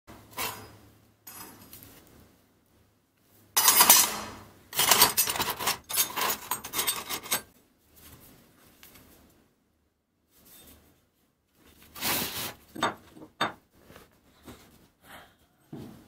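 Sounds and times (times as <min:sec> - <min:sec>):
scrap metal pieces clinking: 0:03.6 - 0:07.5.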